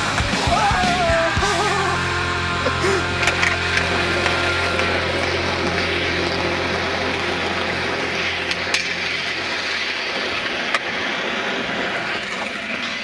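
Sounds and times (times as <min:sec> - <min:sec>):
skateboard wheels rolling on asphalt: 0:00.0 - 0:13.0
skateboard grinding on metal rail: 0:01.6 - 0:13.0
skateboard clacks: 0:03.2 - 0:06.4, 0:08.2 - 0:13.0.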